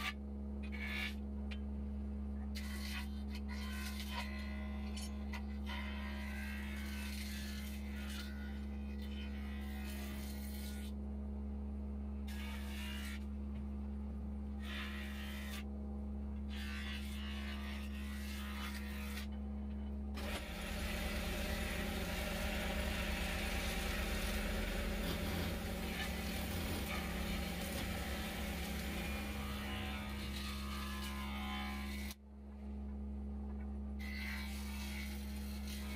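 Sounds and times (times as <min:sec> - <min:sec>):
chisel shaving wood: 0:02.6 - 0:10.9, 0:16.5 - 0:19.3, 0:20.2 - 0:32.2, 0:34.1 - 0:35.9
lathe motor humming: 0:20.2 - 0:32.1.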